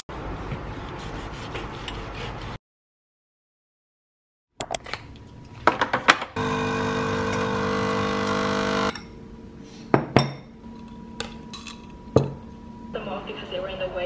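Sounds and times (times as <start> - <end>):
coffee machine pump buzzing: 6.4 - 9.0.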